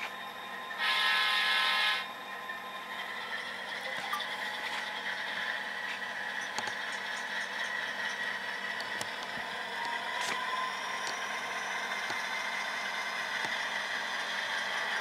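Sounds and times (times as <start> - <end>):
diesel engine sound: 0.0 - 15.0
model locomotive horn blast: 0.8 - 2.1.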